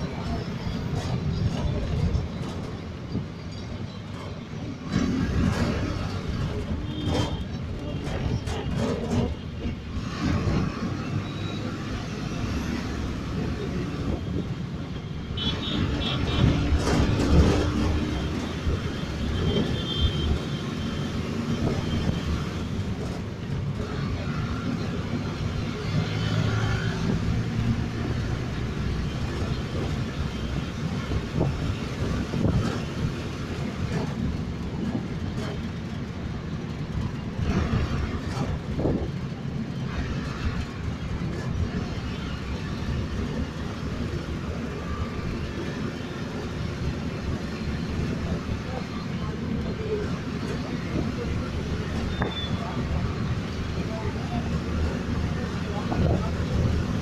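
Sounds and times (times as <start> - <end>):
tram rumbling on rails: 0.0 - 57.0
knocks and clatter: 0.9 - 11.1, 16.0 - 19.8.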